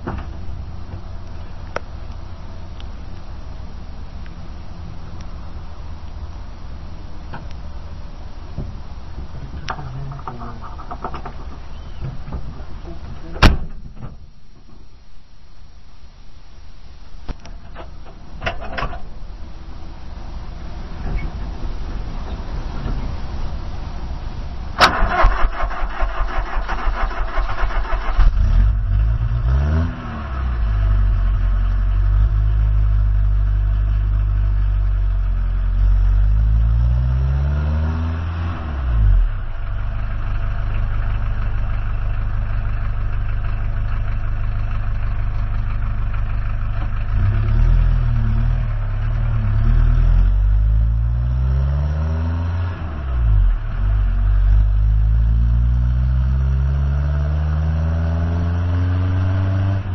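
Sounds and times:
fast loud rattle: 9.5s - 14.1s
car engine from inside cabin: 28.3s - 59.9s.

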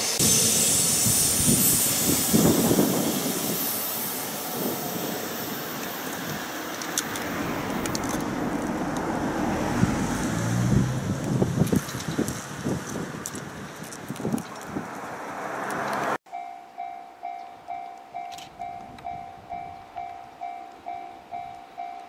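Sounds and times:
electric locomotive passing: 0.0s - 13.9s, 14.8s - 22.0s
wheels on rails: 0.0s - 16.2s.

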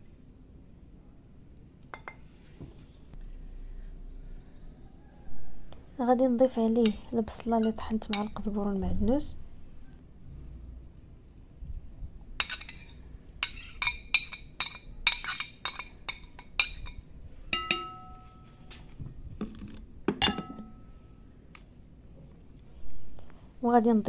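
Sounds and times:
metal spoon scraping ceramic plate: 12.4s - 17.0s.

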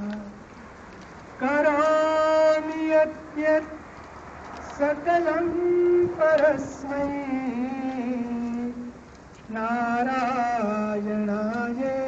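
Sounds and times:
person chanting mantra: 4.7s - 12.0s.

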